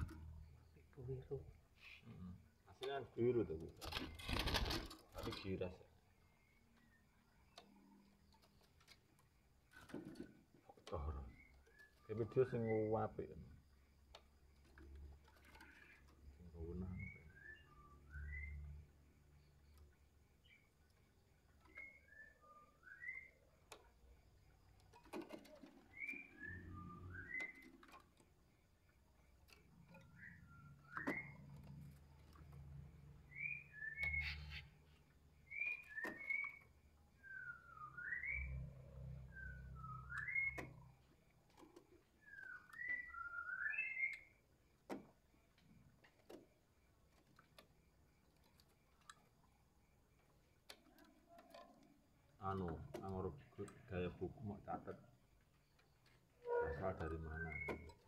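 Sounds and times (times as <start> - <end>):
bird whistling: 17.0 - 18.6, 21.8 - 23.4, 25.9 - 27.6, 33.3 - 34.6, 35.5 - 36.6, 37.2 - 38.7, 39.3 - 40.7, 42.2 - 44.3, 56.4 - 57.9.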